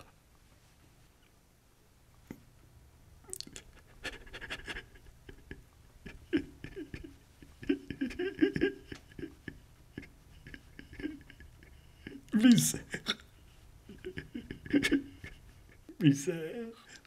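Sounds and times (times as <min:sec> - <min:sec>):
man moaning and panting: 0:05.4 - 0:13.2.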